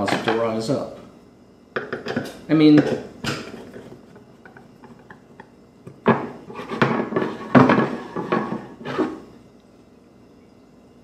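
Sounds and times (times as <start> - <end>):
tools clattering on wooden bench: 1.8 - 8.6.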